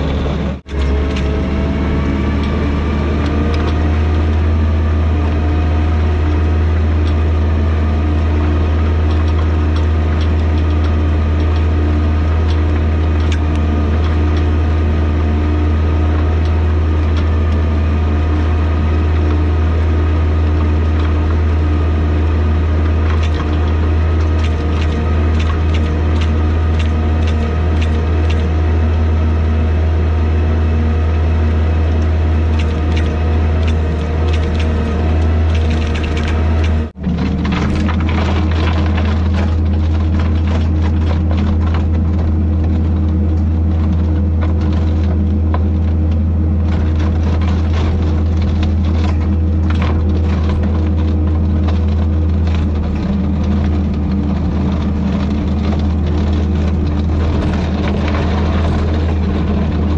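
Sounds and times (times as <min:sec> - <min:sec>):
diesel engine droning: 0:00.0 - 0:59.9
clicks and knocks rattling: 0:23.0 - 0:28.6, 0:32.5 - 0:59.9.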